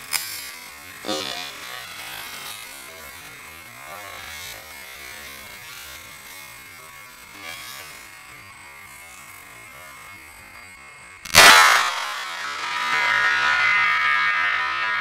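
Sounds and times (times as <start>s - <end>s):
thin high whine: 1.1s - 1.7s, 11.3s - 15.0s.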